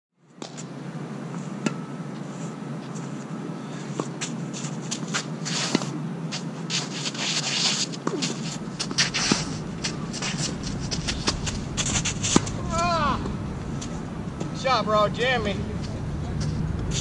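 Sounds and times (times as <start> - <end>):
shoes scuffing on court: 1.4 - 12.5
rackets hitting tennis ball: 7.7 - 14.5.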